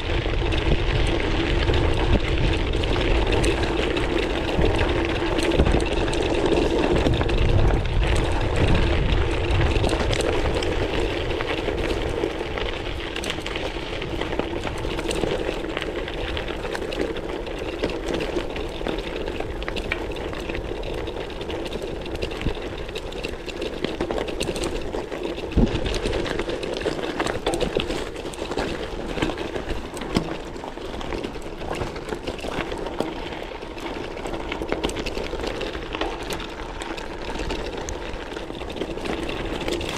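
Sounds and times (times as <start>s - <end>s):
bike rattling: 0.0s - 39.9s
bike tyres crunching on gravel: 0.0s - 39.9s.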